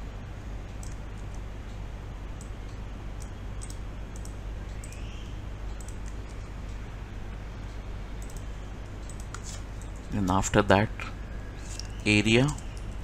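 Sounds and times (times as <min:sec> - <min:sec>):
steady low hum: 0:00.0 - 0:13.0
keyboard typing: 0:00.7 - 0:01.4, 0:03.2 - 0:05.0, 0:05.7 - 0:06.4, 0:08.2 - 0:10.2, 0:11.7 - 0:13.0
mouse clicks: 0:08.2 - 0:10.0.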